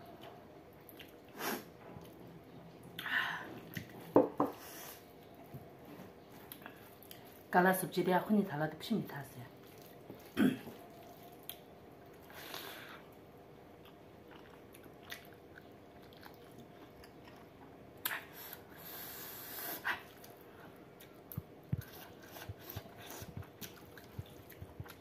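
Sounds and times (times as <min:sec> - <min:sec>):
person chewing food: 0:00.2 - 0:01.4, 0:09.6 - 0:18.6, 0:20.0 - 0:25.0.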